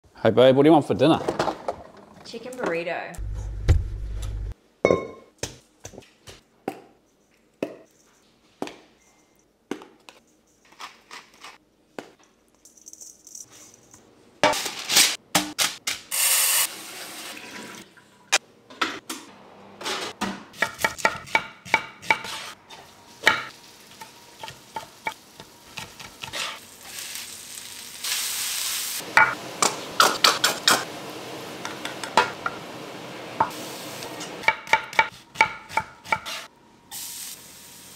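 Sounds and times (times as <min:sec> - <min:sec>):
food sizzling: 0:16.1 - 0:17.9, 0:22.3 - 0:34.5, 0:36.3 - 0:37.9
knife chopping on wooden board: 0:20.6 - 0:22.5, 0:34.4 - 0:36.4.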